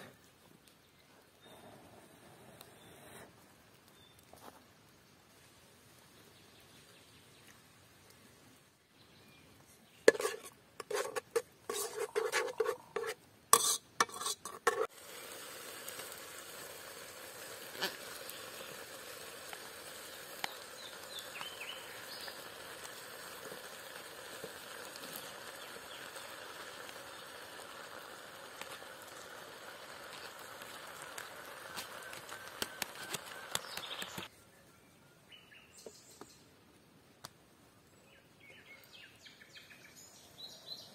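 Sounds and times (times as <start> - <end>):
metal spoon scraping a pot: 10.1 - 14.9
sizzling hiss from pot: 10.1 - 34.3.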